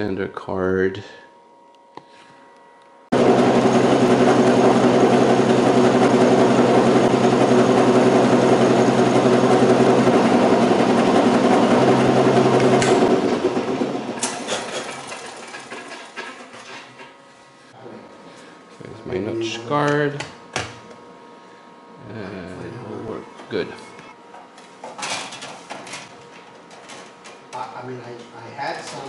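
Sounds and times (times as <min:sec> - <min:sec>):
milling machine cutting: 0:03.2 - 0:16.2.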